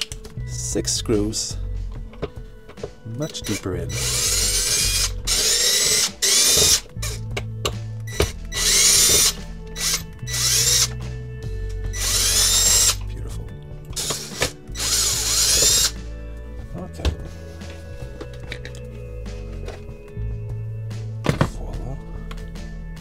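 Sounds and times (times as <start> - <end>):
cordless drill motor whining: 3.4 - 7.4, 8.1 - 11.1, 11.9 - 13.1, 14.0 - 16.0.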